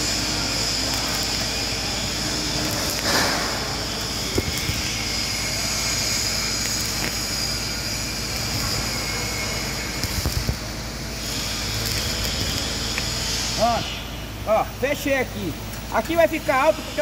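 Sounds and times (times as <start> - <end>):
welding arc hissing: 0.0 - 17.0.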